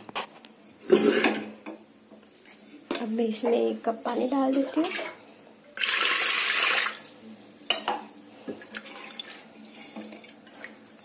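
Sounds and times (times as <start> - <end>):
water splashing into a pot: 5.8 - 7.2.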